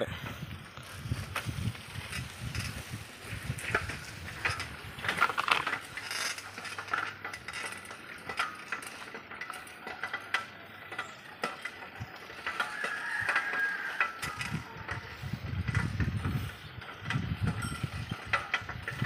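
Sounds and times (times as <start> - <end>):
bicycle rattling off-road: 0.0 - 19.0.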